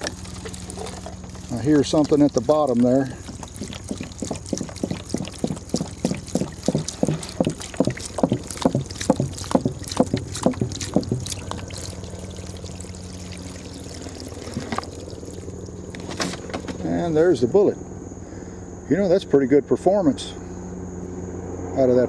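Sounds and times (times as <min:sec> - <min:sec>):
water glugging from jug: 0:00.0 - 0:16.8.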